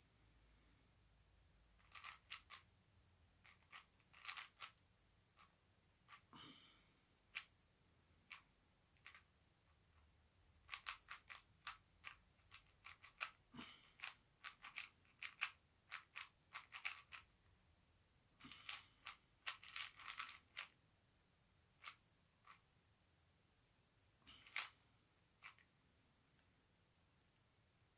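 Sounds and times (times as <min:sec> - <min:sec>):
puzzle cube plastic clicking: 0:01.8 - 0:02.7, 0:03.4 - 0:04.8, 0:08.2 - 0:09.3, 0:10.6 - 0:17.3, 0:18.7 - 0:20.8, 0:21.8 - 0:22.6, 0:24.4 - 0:24.8, 0:25.4 - 0:25.7.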